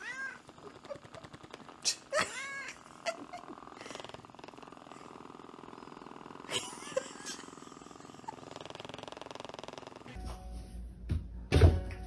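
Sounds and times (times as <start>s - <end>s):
cat meowing: 0.0s - 0.5s
massage gun buzzing: 0.0s - 10.4s.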